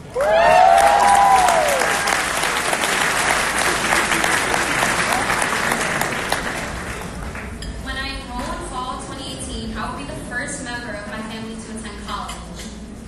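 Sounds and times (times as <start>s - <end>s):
audience applauding: 0.0s - 7.6s
person cheering: 0.2s - 2.2s.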